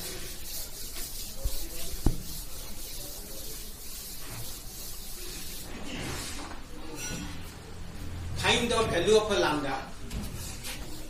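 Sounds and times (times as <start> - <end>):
duster wiping chalkboard: 0.0 - 6.6.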